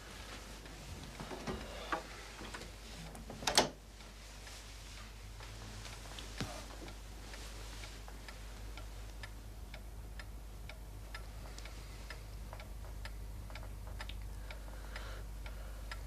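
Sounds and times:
low steady hum: 0:00.0 - 0:16.0
clock ticking: 0:05.4 - 0:16.0.

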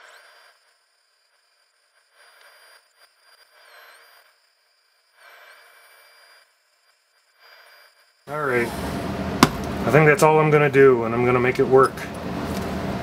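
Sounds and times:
rotary tool grinding glass: 0:00.0 - 0:08.2.

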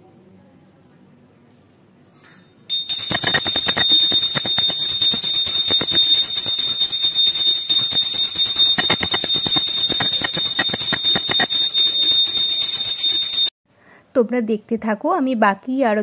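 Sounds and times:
small hand bell ringing fast: 0:02.7 - 0:13.5.

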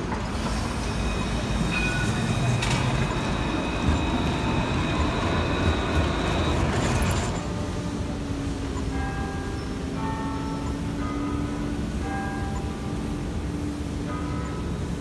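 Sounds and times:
thin high whine: 0:00.0 - 0:14.8
tram wheels rumbling on rails: 0:00.0 - 0:15.0.

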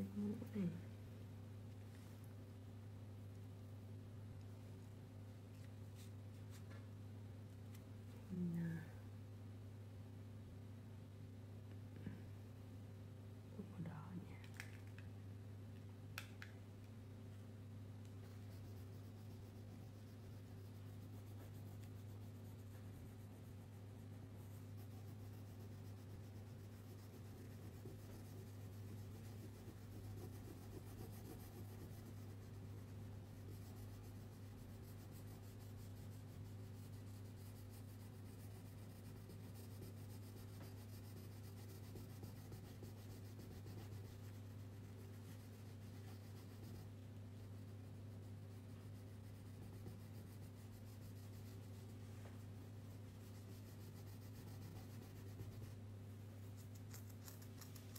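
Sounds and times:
low electrical hum: 0:00.0 - 0:57.9
marker scratching on paper: 0:18.2 - 0:52.0, 0:53.1 - 0:55.8.

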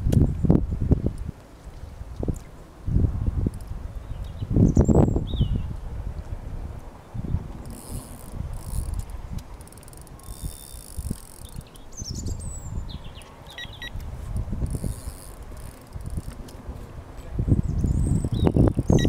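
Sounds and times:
wind rumble on microphone: 0:00.0 - 0:19.0
fishing reel ticking: 0:07.6 - 0:11.9, 0:13.2 - 0:16.4.

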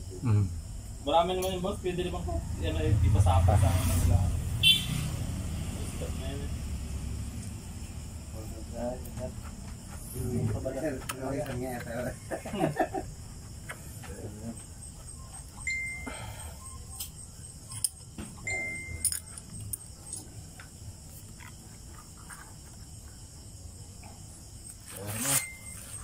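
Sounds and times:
small metal parts clicking: 0:17.0 - 0:18.0, 0:18.8 - 0:20.3.

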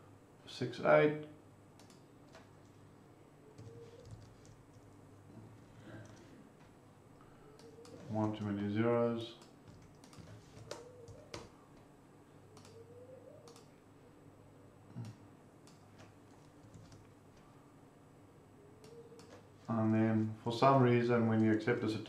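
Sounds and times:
faint keyboard clicks: 0:01.8 - 0:02.8, 0:03.6 - 0:05.0, 0:07.5 - 0:08.5, 0:09.4 - 0:11.5, 0:12.5 - 0:12.8, 0:13.4 - 0:13.7, 0:15.0 - 0:17.2, 0:18.8 - 0:20.3.

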